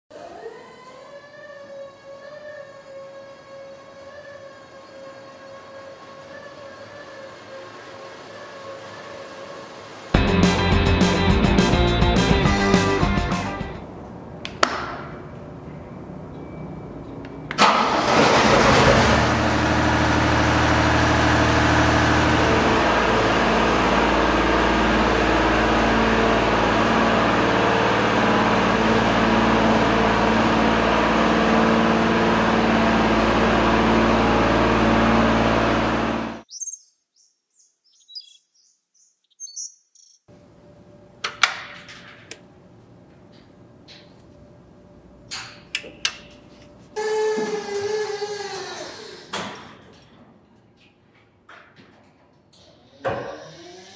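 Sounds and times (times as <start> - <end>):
diesel engine running: 3.2 - 14.2, 17.5 - 36.5.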